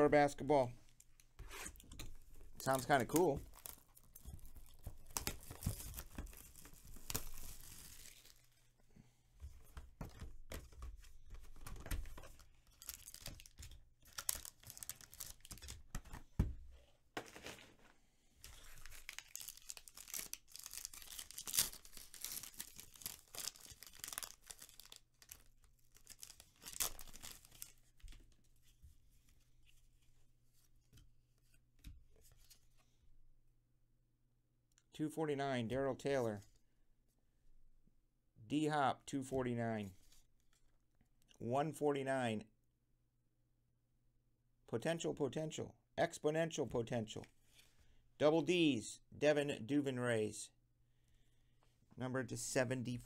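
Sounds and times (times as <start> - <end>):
plastic wrapping tearing and crinkling: 3.5 - 8.5, 12.6 - 15.9, 18.4 - 27.8.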